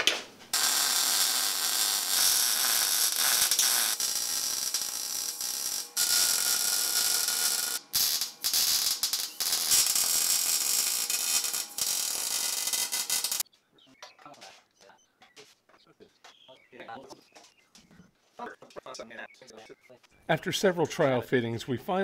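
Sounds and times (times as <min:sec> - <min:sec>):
arc welding hiss: 0:00.5 - 0:13.4.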